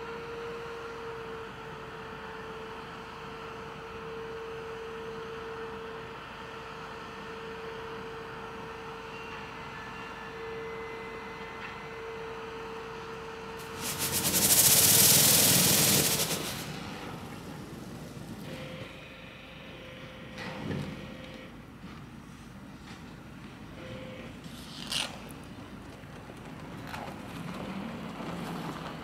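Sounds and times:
streetcar humming: 0:13.0 - 0:19.6
electric arcing crackle: 0:13.6 - 0:18.4.

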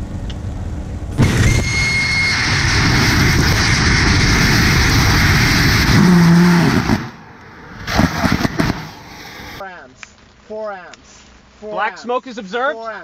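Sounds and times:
rocket engine rushing roar: 0:01.1 - 0:09.6
brief high whistle: 0:01.2 - 0:04.0.

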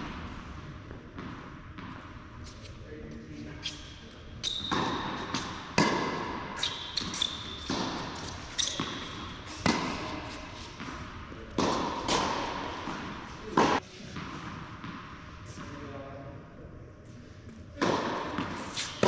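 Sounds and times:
tennis ball bouncing: 0:00.0 - 0:02.2, 0:04.4 - 0:15.7, 0:17.8 - 0:19.0
tennis ball hits echoing: 0:04.5 - 0:15.1.

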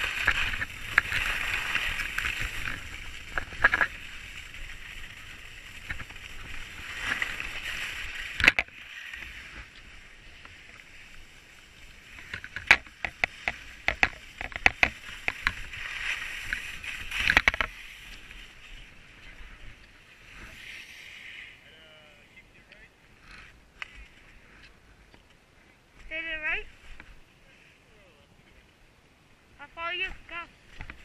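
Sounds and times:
sharp clicks and scrapes: 0:00.0 - 0:10.8, 0:12.1 - 0:18.9
skis sliding on packed snow: 0:00.0 - 0:22.6, 0:26.1 - 0:27.8, 0:29.6 - 0:31.0.

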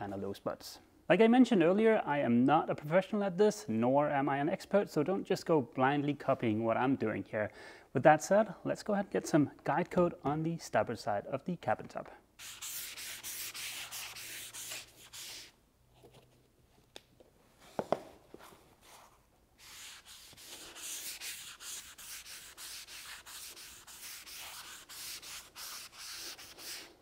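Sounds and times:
pad rubbing on fiberglass: 0:12.4 - 0:15.5, 0:18.8 - 0:26.9.

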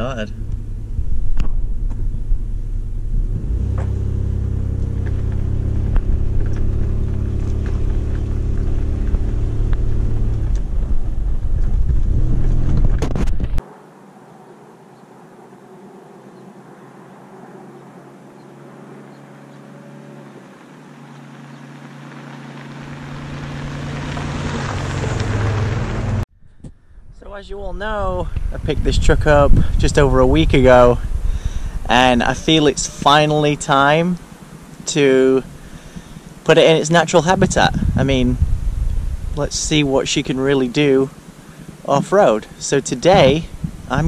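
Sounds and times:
engine pulling under load: 0:00.0 - 0:13.5, 0:16.3 - 0:26.2
deep rumble: 0:00.0 - 0:13.6, 0:22.5 - 0:44.0
tyres on gravel: 0:00.0 - 0:13.8, 0:14.9 - 0:26.2, 0:30.0 - 0:38.4, 0:39.3 - 0:44.0.

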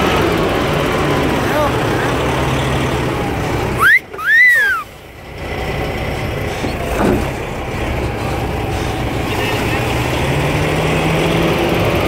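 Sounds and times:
engine hum: 0:00.0 - 0:12.0
wolf whistle: 0:03.8 - 0:04.8.

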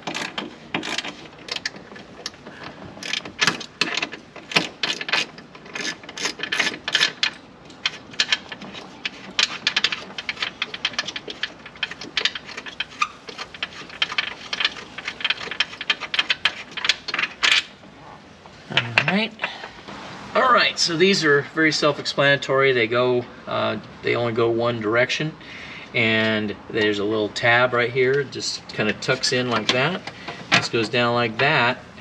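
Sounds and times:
hand ratchet clicking: 0:00.0 - 0:02.4, 0:03.0 - 0:17.7.

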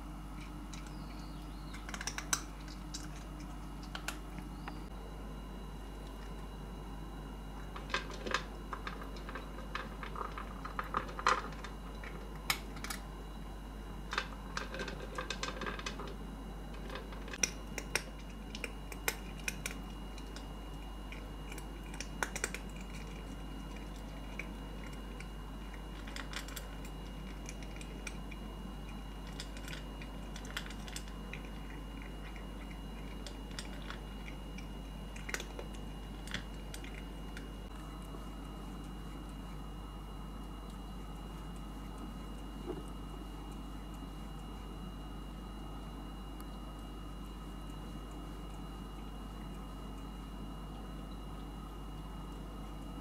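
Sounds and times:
cat chewing: 0:00.2 - 0:04.6, 0:07.4 - 0:53.0.

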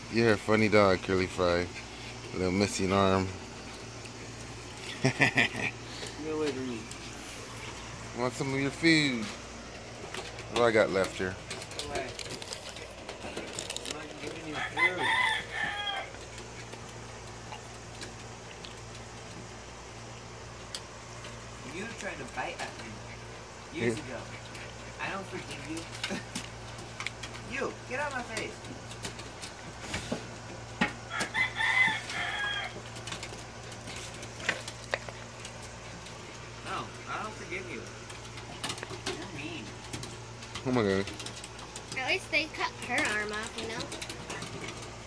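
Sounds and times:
rooster crowing: 0:14.4 - 0:16.3, 0:31.0 - 0:33.0.

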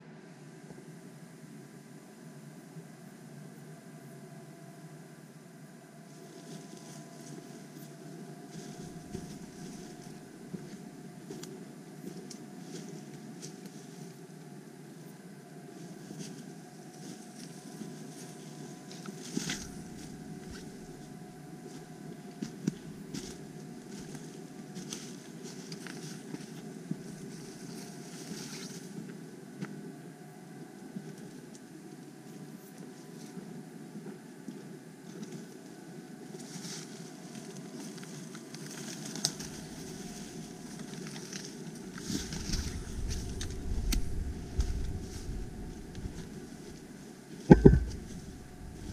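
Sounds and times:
leaves and twigs rustling: 0:06.1 - 0:14.2, 0:15.8 - 0:29.0, 0:36.3 - 0:48.9
footsteps on dirt path: 0:08.5 - 0:10.8, 0:47.5 - 0:48.9
twigs crunching and snapping: 0:38.6 - 0:46.4
wind rumble on microphone: 0:42.1 - 0:46.9, 0:47.5 - 0:48.9
steady low rush: 0:42.4 - 0:46.9, 0:47.5 - 0:48.9.

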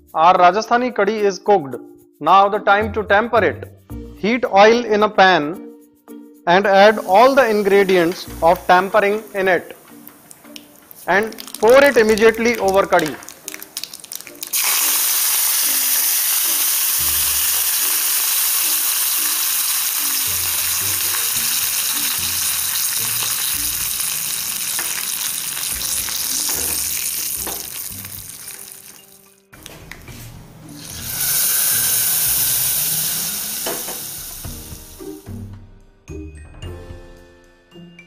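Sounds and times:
hot oil sizzling: 0:06.7 - 0:29.4, 0:30.7 - 0:35.5.

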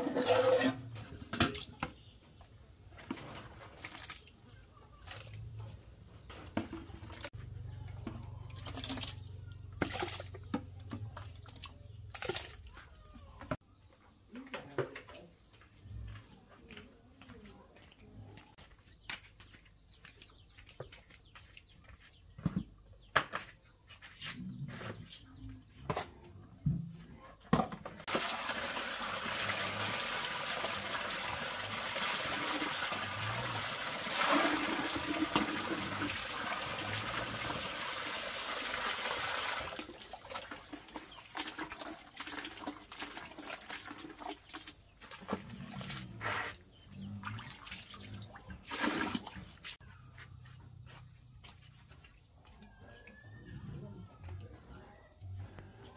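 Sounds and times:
water running in a stream: 0:28.0 - 0:46.0.

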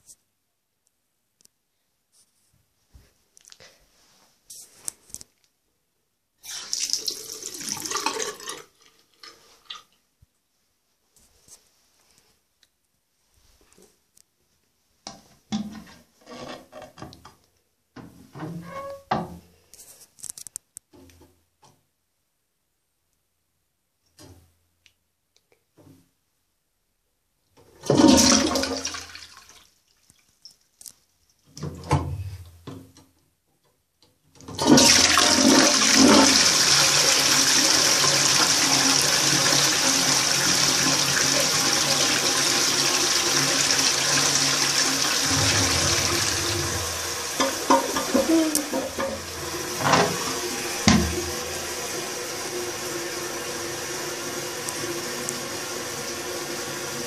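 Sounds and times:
toilet cistern flushing: 0:06.4 - 0:09.2, 0:27.8 - 0:29.5, 0:34.5 - 0:57.0
water rushing into bowl: 0:44.3 - 0:51.8.

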